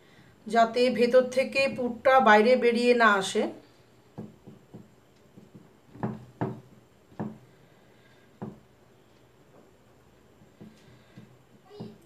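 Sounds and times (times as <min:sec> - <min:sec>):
dough pressed on wooden board: 0:04.0 - 0:08.8, 0:10.2 - 0:12.0.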